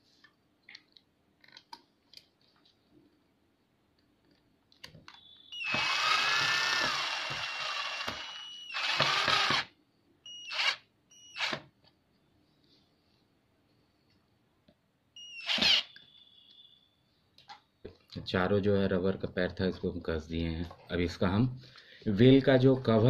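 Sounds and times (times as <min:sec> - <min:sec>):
electric screwdriver whining: 0:05.6 - 0:09.7, 0:10.5 - 0:11.6, 0:15.3 - 0:15.9.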